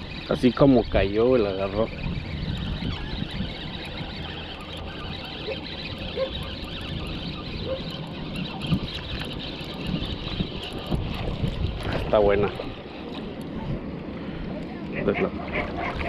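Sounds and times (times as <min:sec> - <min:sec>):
fishing reel ticking: 0:00.0 - 0:13.6
water noise: 0:00.0 - 0:16.0
wind: 0:00.0 - 0:16.0
short pitched calls: 0:01.6 - 0:10.5.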